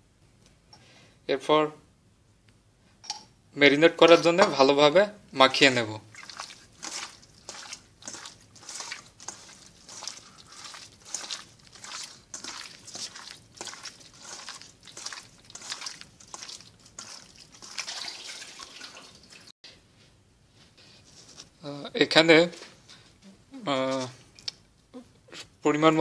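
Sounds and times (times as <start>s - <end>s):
hand squelching raw chicken: 6.1s - 19.5s.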